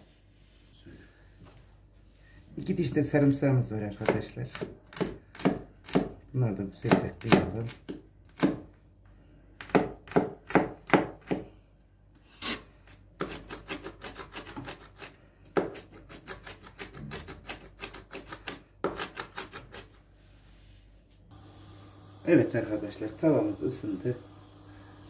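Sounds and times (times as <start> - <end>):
cleaver chopping on cutting board: 4.0 - 6.2, 6.8 - 8.6, 9.6 - 11.4.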